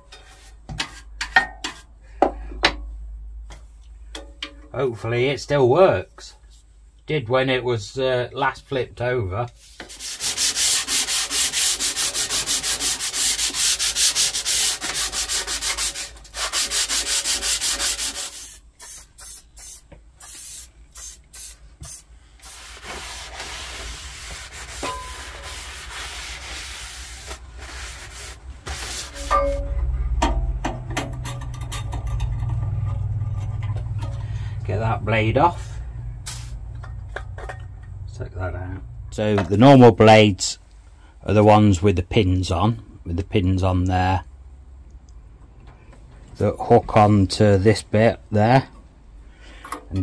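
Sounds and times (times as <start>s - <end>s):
scrubbing metal table by hand: 21.9s - 29.4s.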